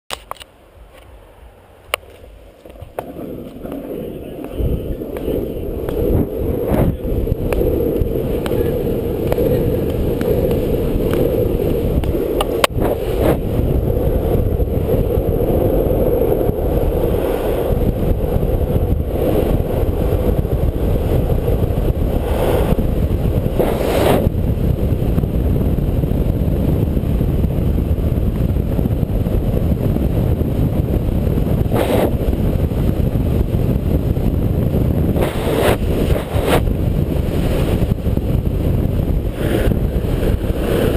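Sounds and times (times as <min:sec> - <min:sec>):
sharp click: 0:00.1 - 0:01.1
longboard wheels rolling on asphalt: 0:00.1 - 0:40.9
wind buffeting microphone: 0:00.8 - 0:40.9.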